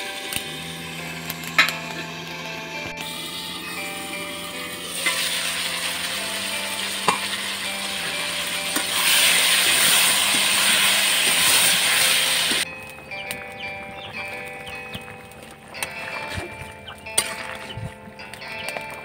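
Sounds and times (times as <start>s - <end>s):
vegetables sizzling in hot oil: 3.0s - 12.6s.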